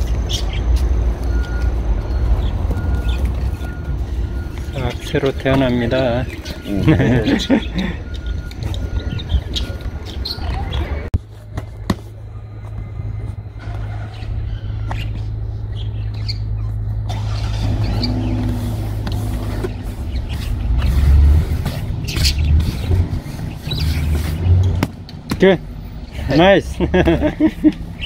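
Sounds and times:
vehicle engine running: 0:11.2 - 0:28.0.

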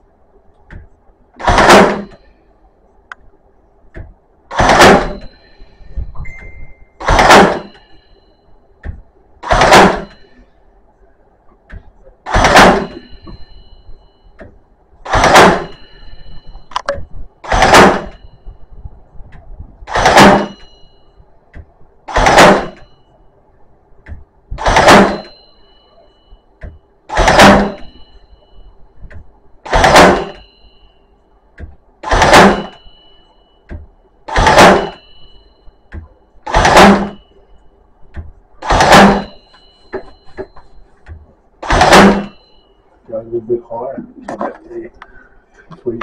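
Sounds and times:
nail gun firing: 0:01.4 - 0:02.2, 0:04.5 - 0:05.3, 0:07.0 - 0:07.8, 0:09.4 - 0:10.2, 0:12.2 - 0:13.1, 0:15.0 - 0:15.8, 0:17.4 - 0:18.2, 0:19.9 - 0:20.6, 0:22.1 - 0:22.9, 0:24.6 - 0:25.4, 0:27.1 - 0:28.0, 0:29.6 - 0:30.5, 0:32.0 - 0:32.8, 0:34.3 - 0:35.0, 0:36.4 - 0:37.2, 0:38.6 - 0:39.4, 0:41.6 - 0:42.4
metallic ring: 0:01.4 - 0:03.0, 0:04.5 - 0:10.9, 0:12.0 - 0:23.8, 0:24.5 - 0:43.8.

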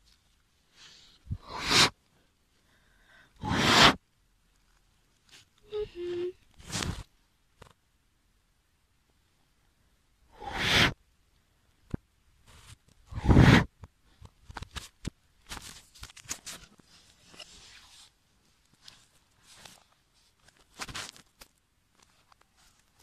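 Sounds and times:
rustling and soft whooshing: 0:06.4 - 0:07.8, 0:11.9 - 0:23.0.

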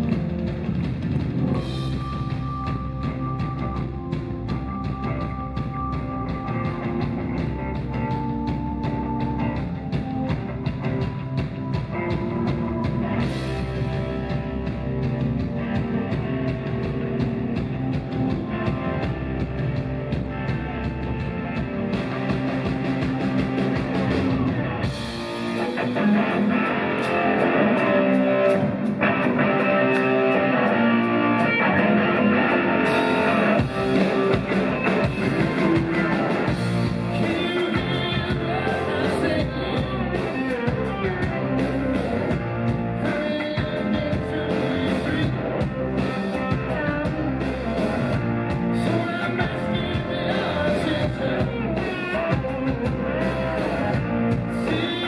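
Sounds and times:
live rock band playing: 0:00.0 - 0:55.0.

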